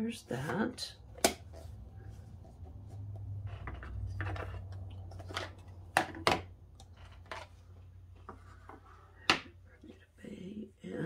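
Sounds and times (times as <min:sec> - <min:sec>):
plastic cases rustling: 0:01.4 - 0:09.1.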